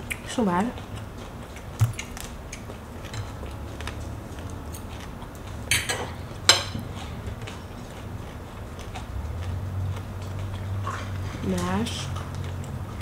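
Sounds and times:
person chewing: 0.0 - 13.0
fork clattering: 3.0 - 3.5, 5.7 - 7.2.

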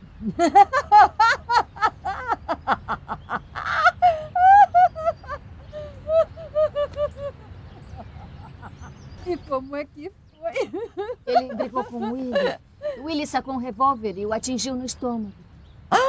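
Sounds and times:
woman laughing loudly: 0.2 - 9.0, 10.5 - 13.0.

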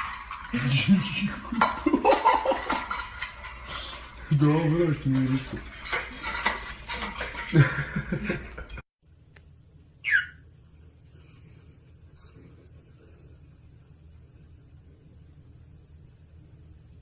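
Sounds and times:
metal bowl clattering on tile floor: 0.0 - 8.8.

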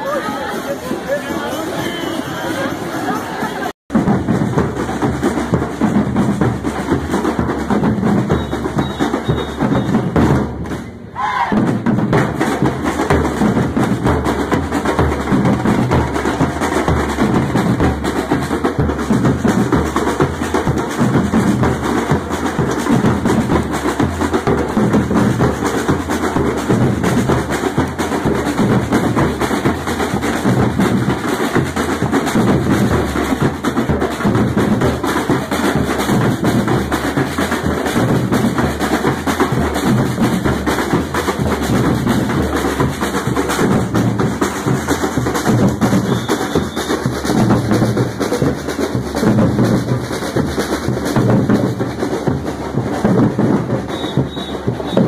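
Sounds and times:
street drum troupe playing: 0.0 - 55.0
bass drums struck with mallets: 11.5 - 55.0.

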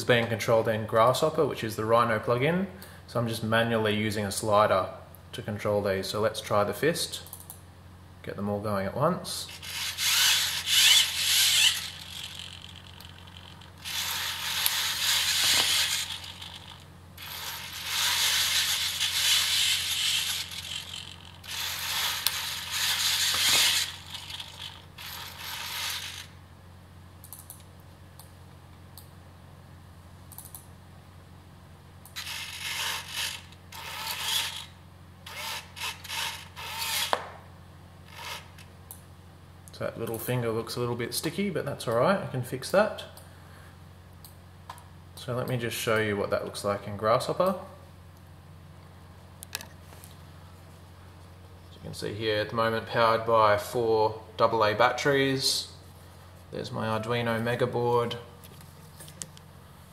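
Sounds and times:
servo motors whirring: 9.5 - 26.3, 32.2 - 34.7, 35.3 - 37.2, 38.1 - 38.6.

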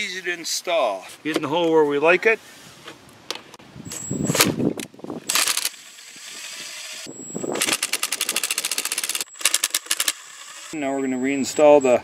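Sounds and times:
impact driver motor whir: 5.3 - 10.8.

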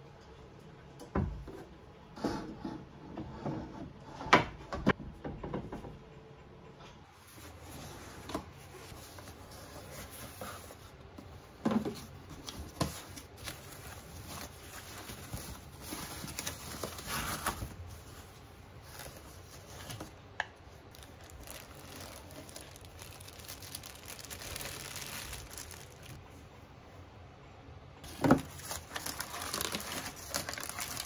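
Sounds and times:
paper and plastic wrapping rustling: 7.2 - 26.2, 28.0 - 31.0.

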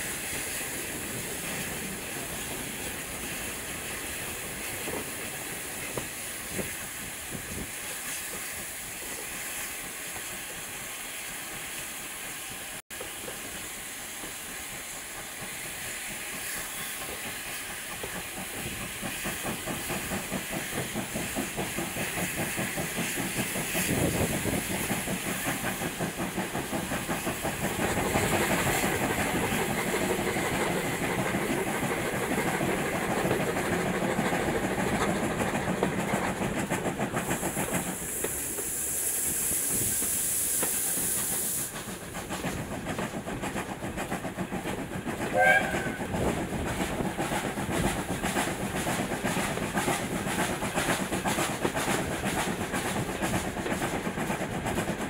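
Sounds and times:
steam hissing: 0.0 - 55.0
steam locomotive exhaust beats: 0.0 - 55.0.

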